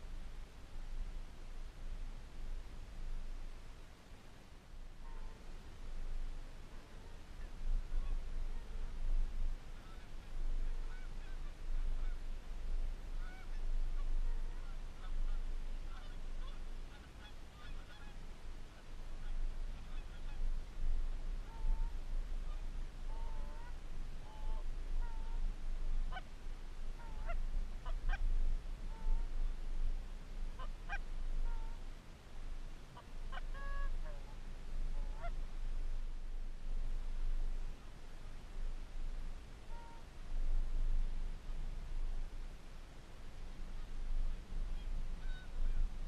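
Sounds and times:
steady low rumble: 0.0s - 46.0s
geese honking: 13.2s - 13.6s, 14.2s - 18.2s, 33.0s - 34.4s, 44.8s - 45.9s.

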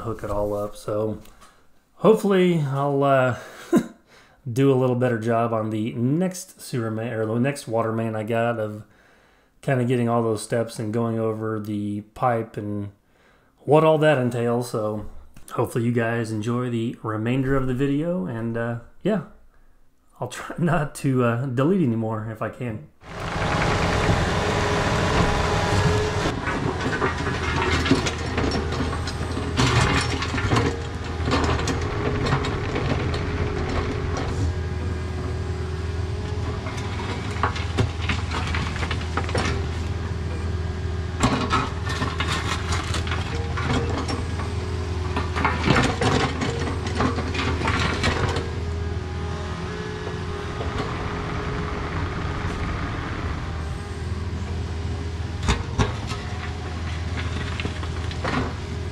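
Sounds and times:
diesel engine running: 23.0s - 58.9s
metallic clanks and rattles: 26.3s - 34.5s, 41.2s - 48.6s.

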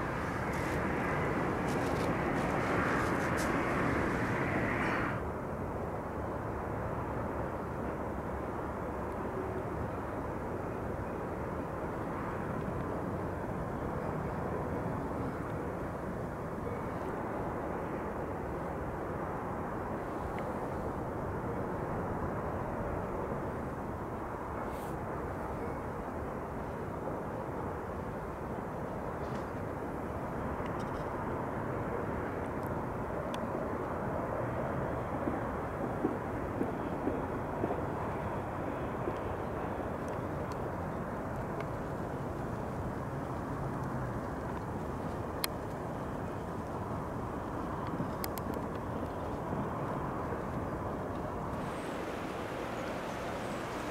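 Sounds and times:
distant jet engine roar: 0.0s - 53.9s
faint ticks: 47.8s - 49.3s.

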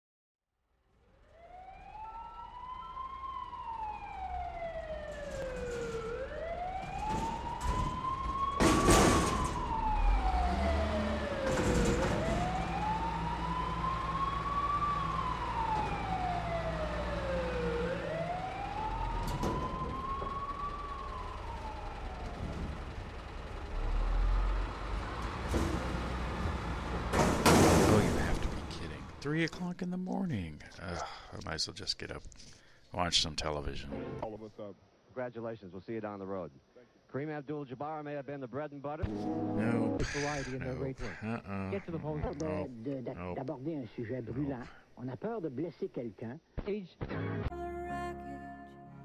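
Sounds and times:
emergency siren wailing: 1.0s - 29.2s, 39.1s - 40.6s
short loud siren bursts: 1.3s - 23.1s
low vehicle rumble: 2.6s - 29.3s.

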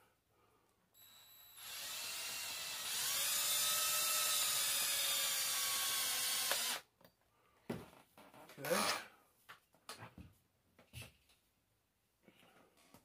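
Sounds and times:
cordless drill driving screw: 1.0s - 6.8s.

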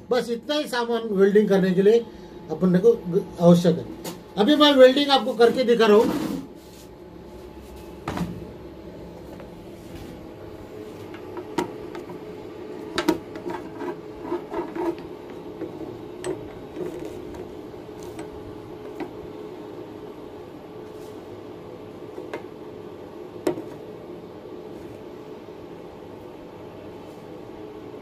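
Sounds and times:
welding machine hum: 8.8s - 26.0s.

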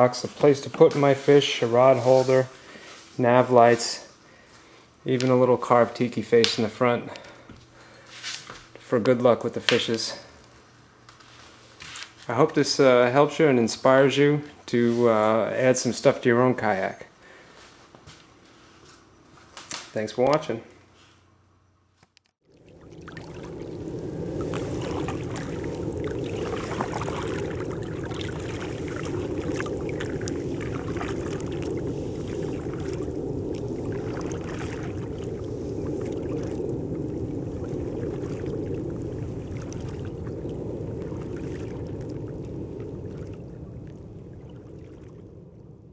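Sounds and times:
paddle dipping and dripping: 22.4s - 45.6s
steady wash of water: 22.5s - 45.9s.

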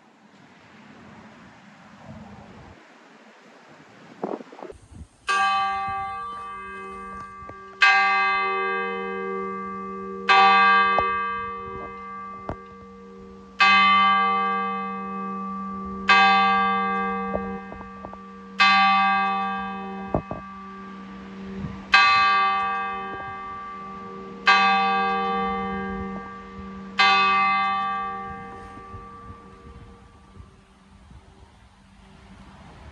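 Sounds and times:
church bell tolling: 5.3s - 31.0s.

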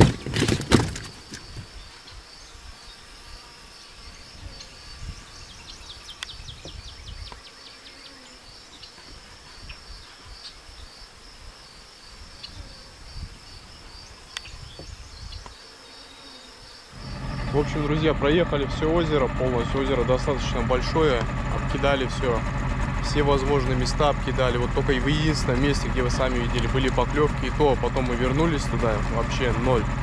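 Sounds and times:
insects trilling: 0.0s - 22.1s
faint low rumble: 17.0s - 30.0s.

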